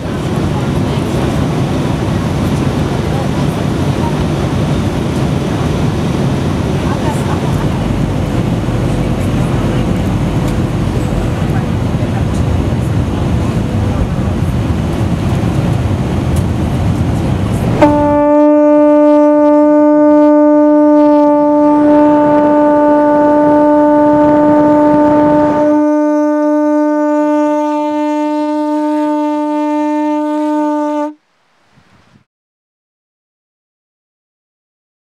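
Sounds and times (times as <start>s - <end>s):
jet airliner cabin roar: 0.0s - 27.4s
conch shell horn long note: 17.5s - 31.3s.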